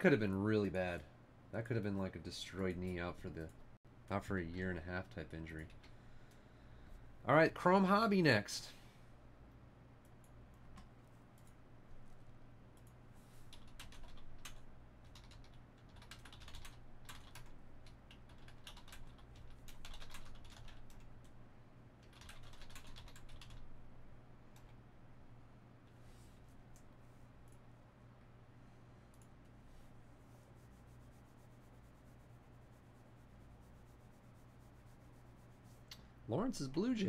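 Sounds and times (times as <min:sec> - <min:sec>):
low steady hum: 0:00.0 - 0:37.0
keyboard typing and clicking: 0:12.8 - 0:21.1, 0:22.0 - 0:23.6.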